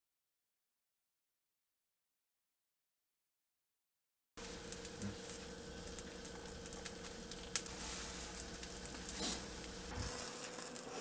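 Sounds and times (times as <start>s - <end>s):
faint steady hum: 4.4s - 11.0s
fork scraping a frying pan: 9.1s - 9.5s.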